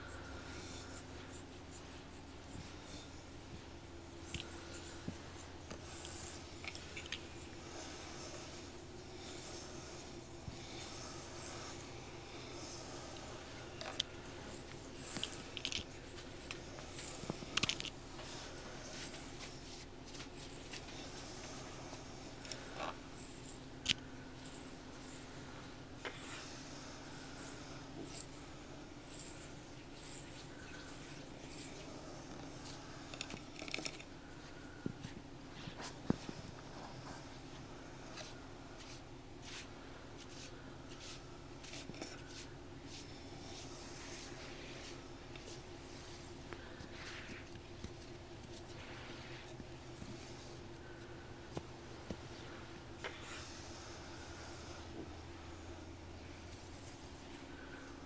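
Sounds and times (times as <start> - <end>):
low steady hum: 0.0 - 58.0
soft scratchy strokes: 35.5 - 47.5, 48.5 - 51.0.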